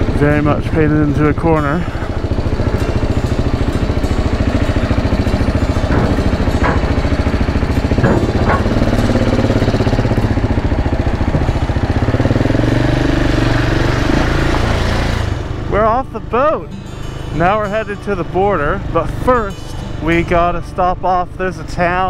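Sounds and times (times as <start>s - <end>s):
motorcycle engine at low revs: 0.0s - 20.6s
short knocks: 5.7s - 9.3s.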